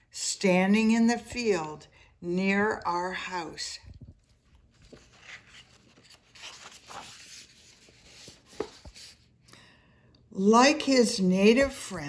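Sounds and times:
book page turning: 4.0s - 9.3s.

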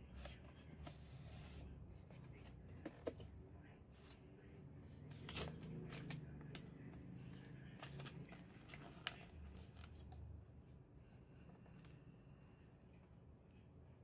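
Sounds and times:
cardboard and paper rustling: 5.1s - 10.2s.

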